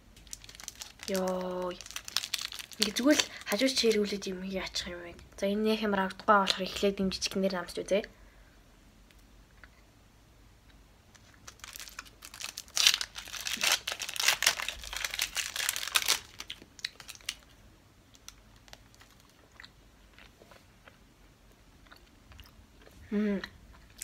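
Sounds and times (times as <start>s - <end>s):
soft candy being chewed: 0.1s - 3.6s, 9.0s - 9.9s, 10.6s - 24.0s
candy wrapper crinkling: 0.1s - 4.2s, 11.1s - 19.6s.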